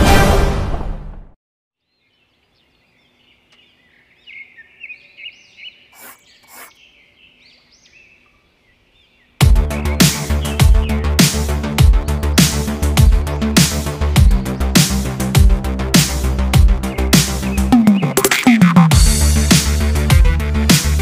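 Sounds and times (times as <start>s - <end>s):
music: 0.0s - 1.4s, 9.4s - 21.0s
faint bird chirps: 1.8s - 10.9s
electronic music with heavy beat: 9.4s - 21.0s.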